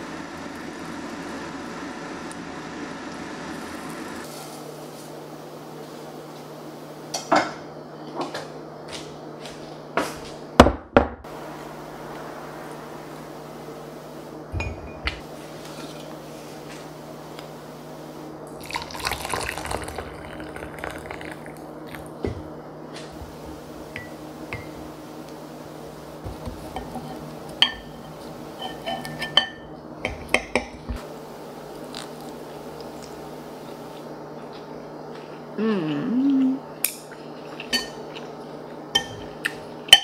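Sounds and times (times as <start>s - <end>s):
low hum: 11.2s - 18.5s
liquid pouring into a mug: 18.6s - 22.2s.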